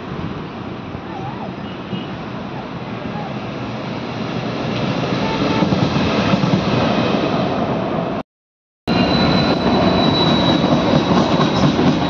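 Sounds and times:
diesel locomotive approaching: 2.3s - 8.2s, 8.9s - 12.0s.

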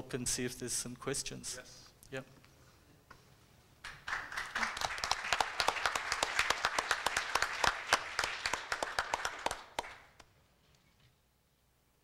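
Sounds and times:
audience applauding: 3.8s - 10.3s.

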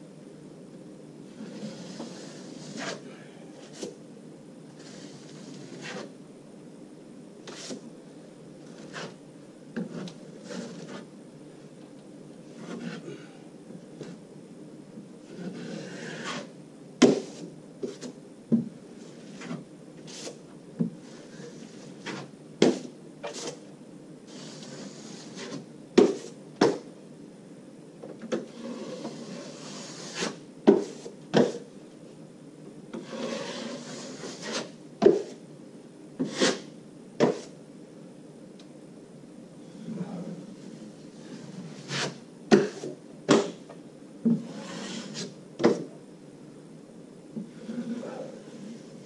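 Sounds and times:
trowel scraping plasterboard: 1.4s - 3.0s, 4.8s - 6.1s, 7.5s - 7.8s, 8.6s - 9.2s, 9.8s - 11.1s, 12.6s - 13.1s, 15.3s - 18.1s, 19.1s - 20.4s, 21.0s - 23.6s, 24.3s - 26.3s, 28.4s - 31.6s, 32.9s - 35.4s, 36.2s - 37.5s, 41.2s - 43.6s, 44.3s - 45.8s, 47.5s - 48.9s.

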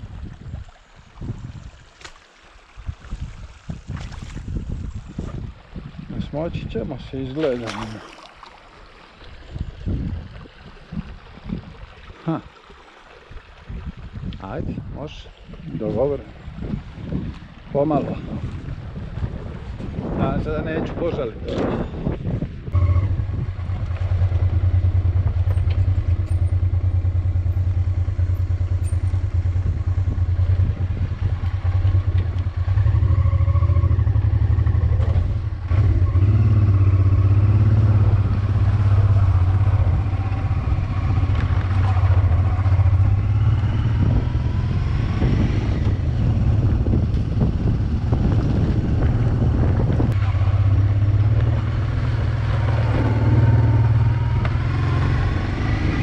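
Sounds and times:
motorcycle engine drone: 22.7s - 56.0s.

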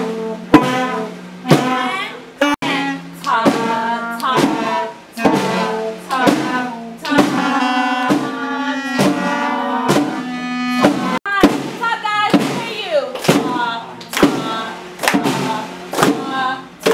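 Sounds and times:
wind band playing: 0.0s - 11.2s
drum hits: 0.0s - 16.9s.

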